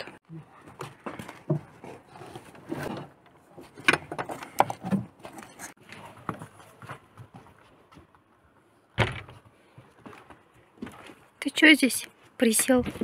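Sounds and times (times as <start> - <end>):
wooden boards knocking and clattering: 0.7 - 1.9, 2.6 - 5.5.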